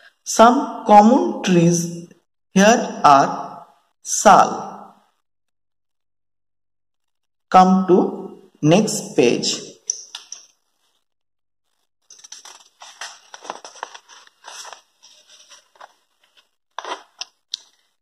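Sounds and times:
paper pages rustling: 0:12.0 - 0:18.0
paper flicks: 0:12.1 - 0:14.8.

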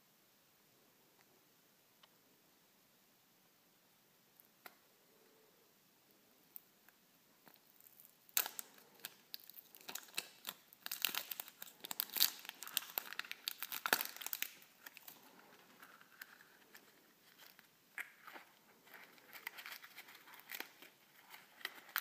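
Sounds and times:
plastic wrapper crinkling: 0:07.4 - 0:22.0.

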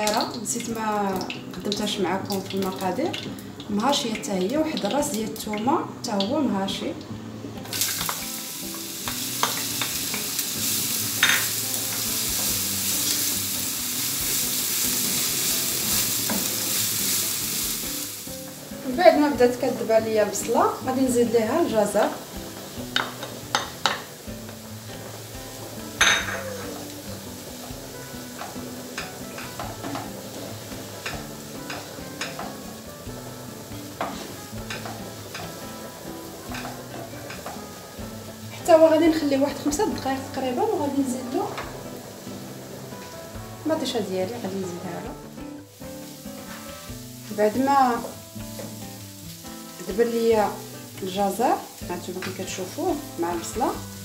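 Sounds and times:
onion sizzling in oil: 0:00.0 - 0:54.0
wooden spoon scraping a pan: 0:21.2 - 0:45.0, 0:46.0 - 0:49.0
wooden spoon scraping pan: 0:46.3 - 0:47.0.

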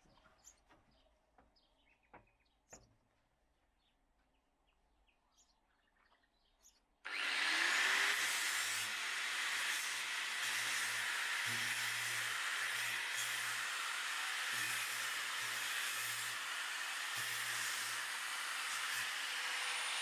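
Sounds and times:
power tool running: 0:07.1 - 0:20.0.

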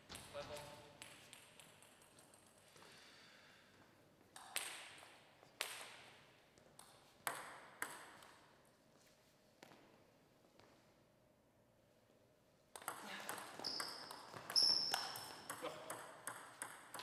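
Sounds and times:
table tennis ball bouncing: 0:01.0 - 0:02.5, 0:04.3 - 0:08.5, 0:12.7 - 0:17.0.

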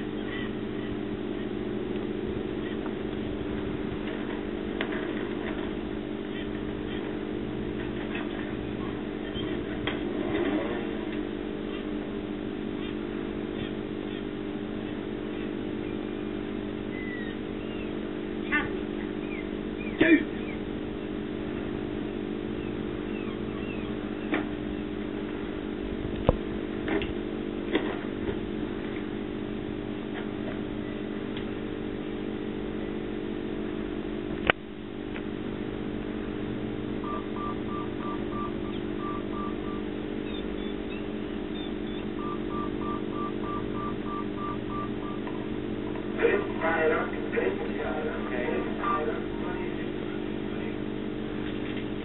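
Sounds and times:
low mechanical drone: 0:00.0 - 0:52.0
short electronic beeps: 0:37.0 - 0:40.4, 0:41.6 - 0:45.2.

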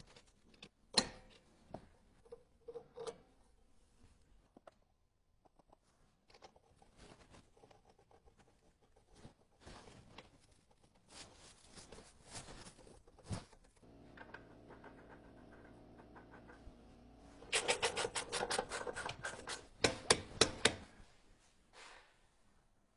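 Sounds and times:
steady hum: 0:13.8 - 0:19.5.

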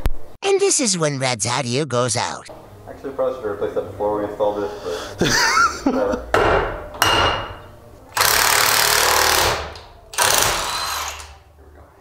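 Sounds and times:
impact wrench hammering: 0:06.3 - 0:11.3.

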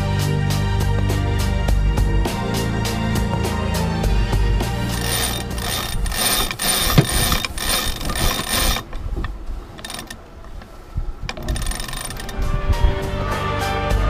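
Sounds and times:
winch ratcheting clicks: 0:04.9 - 0:12.4.

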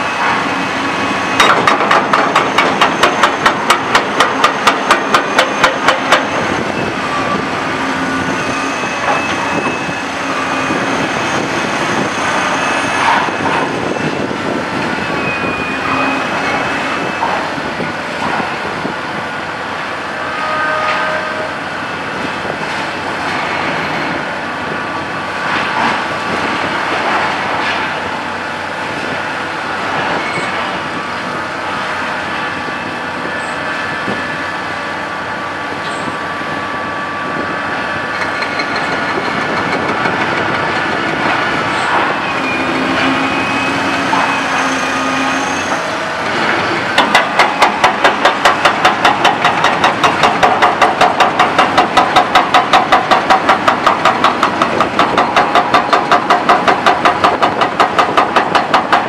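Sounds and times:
excavator hammering concrete: 0:01.4 - 0:06.3, 0:47.0 - 0:59.0.

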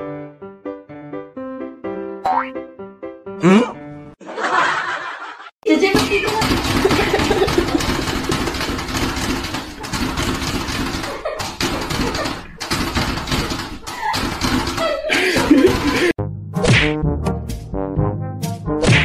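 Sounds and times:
music: 0:00.0 - 0:04.2, 0:16.2 - 0:19.0
people laughing: 0:04.2 - 0:05.6, 0:06.8 - 0:08.6, 0:11.0 - 0:12.6, 0:13.8 - 0:16.2
people talking: 0:05.6 - 0:07.5.

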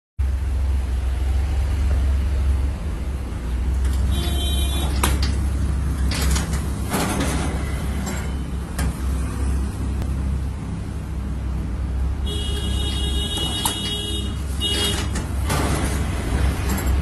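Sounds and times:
strapping machine humming: 0:03.4 - 0:11.4, 0:12.3 - 0:17.0.

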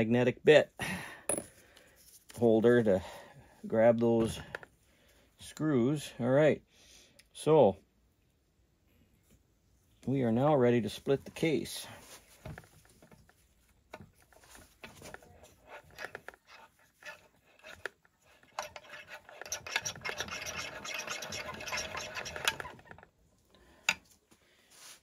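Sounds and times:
metallic scratching and clicking: 0:14.8 - 0:23.1.

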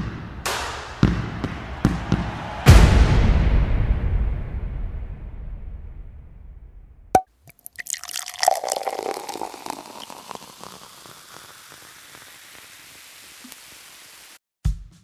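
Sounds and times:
crackling burst of noise: 0:07.7 - 0:14.4
steady hiss: 0:08.7 - 0:14.4.

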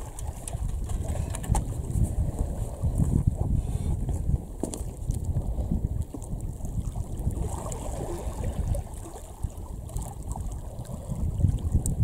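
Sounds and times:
wind buffeting microphone: 0:00.0 - 0:12.0
waves lapping on stony shore: 0:06.6 - 0:12.0.

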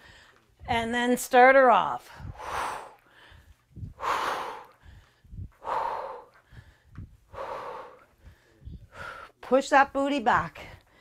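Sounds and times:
woman breathing out hard: 0:02.2 - 0:09.3.

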